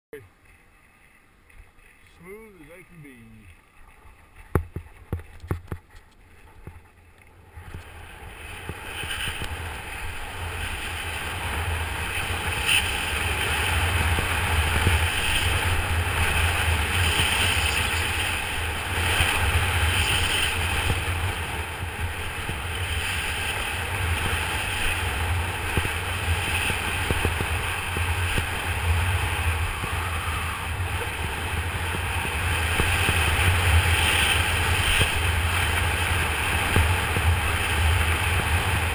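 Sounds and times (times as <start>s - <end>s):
skis scraping on snow: 0.5s - 38.9s
wind buffeting microphone: 3.8s - 38.9s.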